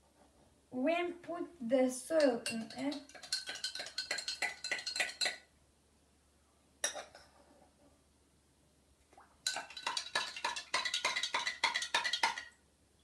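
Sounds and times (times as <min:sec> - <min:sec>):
teaspoon clinking in glass: 0:02.2 - 0:05.4, 0:09.5 - 0:12.5.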